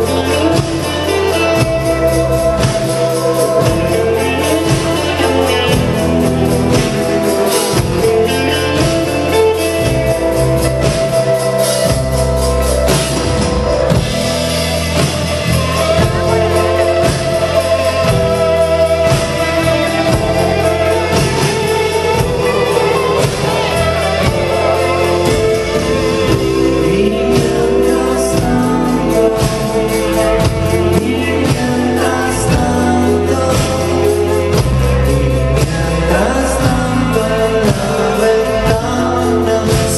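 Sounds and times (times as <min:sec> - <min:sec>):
bass guitar: 0:00.0 - 0:39.9
drum kit: 0:00.0 - 0:39.9
electric guitar: 0:00.0 - 0:39.9
person singing: 0:00.0 - 0:39.9.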